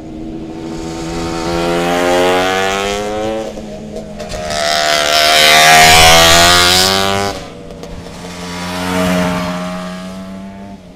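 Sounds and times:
motorcycle engine approaching: 0.0s - 10.9s
racing motorcycle passing at speed: 0.0s - 10.9s.

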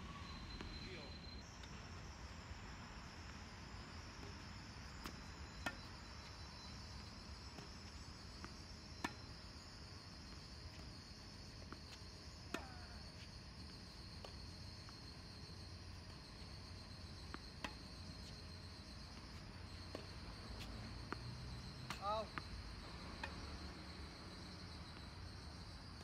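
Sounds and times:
crickets chirping: 0.0s - 26.0s
tennis balls hit and bouncing: 6.8s - 15.1s, 16.0s - 23.6s.

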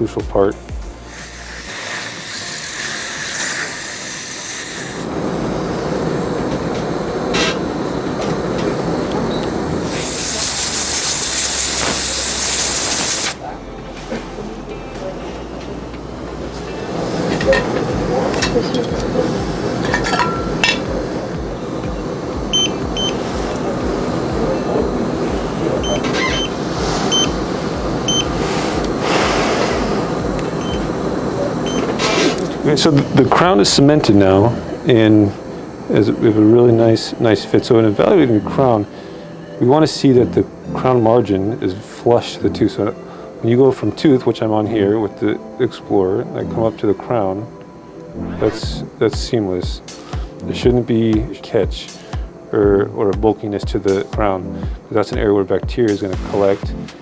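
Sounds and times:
brief hissing bursts: 1.0s - 5.1s, 9.8s - 13.4s, 28.4s - 30.1s
dental suction hissing: 1.0s - 5.1s, 9.7s - 13.4s, 25.1s - 32.5s.

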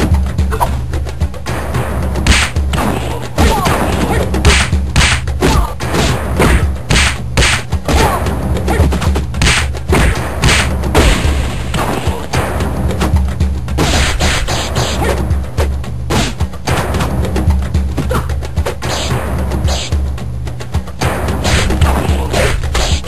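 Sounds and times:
low musical background: 0.0s - 23.0s
punch and kick hits: 1.6s - 12.8s, 13.7s - 17.0s, 21.0s - 23.0s.

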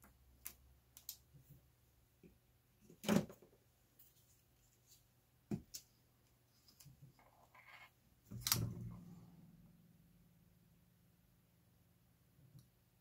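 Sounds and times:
soft rustle: 3.8s - 5.2s.

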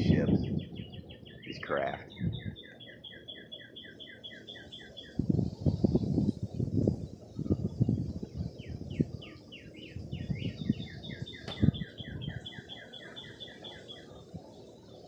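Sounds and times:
microphone rumbles and bumps: 0.0s - 1.0s, 2.1s - 2.6s, 5.2s - 9.2s, 10.0s - 12.4s
songbird whistling: 0.3s - 5.6s, 8.6s - 15.0s.

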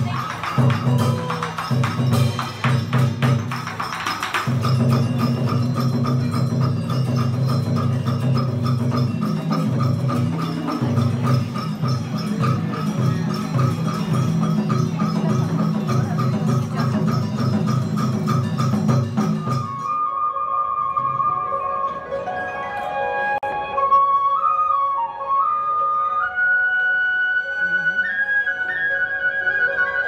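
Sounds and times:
clicking percussion beat: 0.0s - 20.0s.

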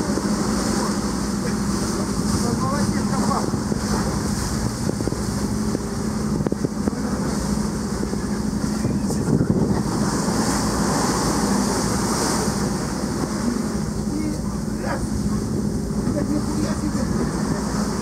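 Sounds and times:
sea wash: 0.0s - 18.0s
ship engine humming: 0.0s - 18.0s
wind buffeting microphone: 0.0s - 18.0s.

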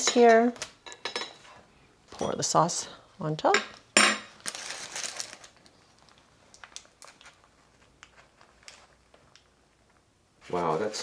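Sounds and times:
parchment paper crinkling: 4.4s - 10.0s.

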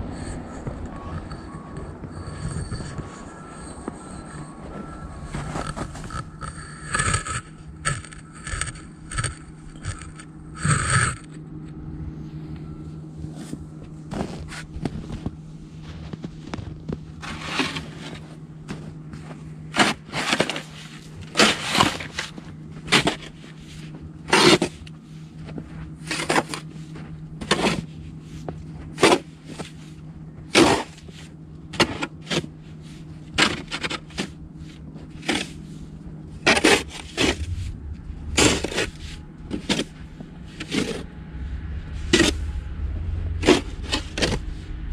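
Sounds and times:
low hum: 0.0s - 44.9s
snow shovel scraping snow: 17.2s - 18.3s, 19.7s - 24.8s, 36.4s - 37.8s, 38.4s - 41.0s.

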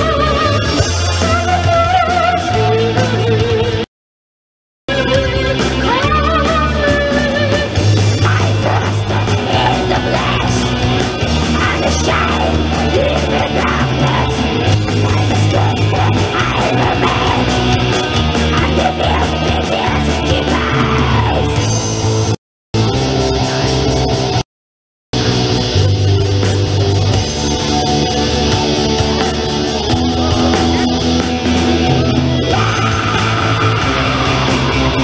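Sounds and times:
bass and drums: 0.0s - 3.9s, 4.9s - 24.4s, 25.1s - 35.0s
distorted electric guitars: 0.0s - 3.9s, 4.9s - 24.4s, 25.2s - 35.0s
screamed vocals: 5.8s - 10.8s, 11.4s - 22.0s, 32.0s - 35.0s.

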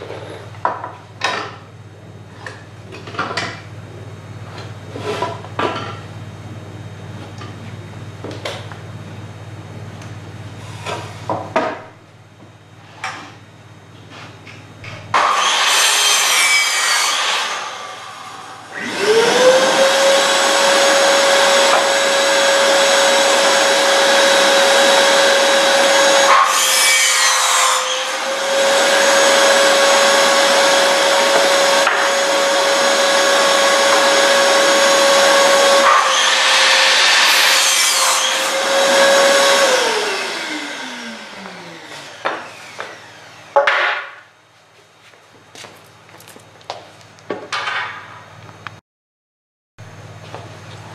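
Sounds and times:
shop vacuum motor: 6.6s - 11.9s, 14.0s - 44.3s
miter saw cutting wood: 15.1s - 44.2s.

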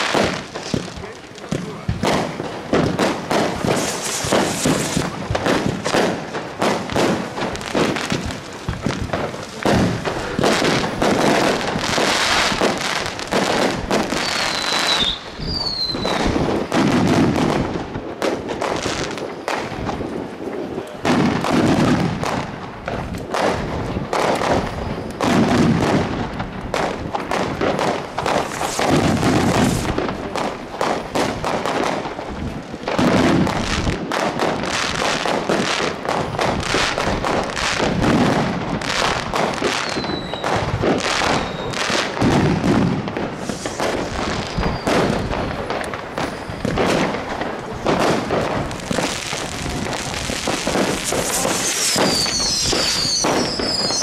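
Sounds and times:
fireworks bangs and crackling: 0.0s - 54.0s
falling firework whistles: 3.4s - 5.2s, 9.5s - 17.5s, 28.1s - 30.0s, 38.9s - 47.1s, 48.3s - 54.0s.

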